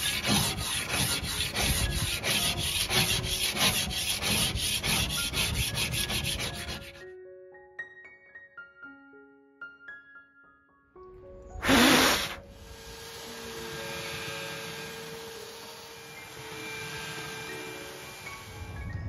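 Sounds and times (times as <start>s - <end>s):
scraper blade rasping varnish off wood: 0.0s - 7.0s, 11.6s - 12.4s.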